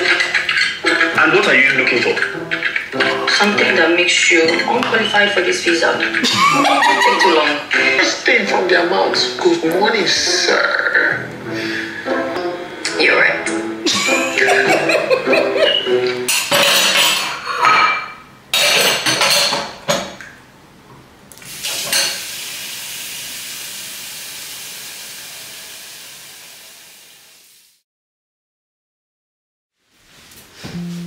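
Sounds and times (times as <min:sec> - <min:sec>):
kitchenware clinking: 0:00.0 - 0:07.9, 0:14.0 - 0:20.2, 0:21.7 - 0:22.2
faucet running into metal sink: 0:21.4 - 0:27.1.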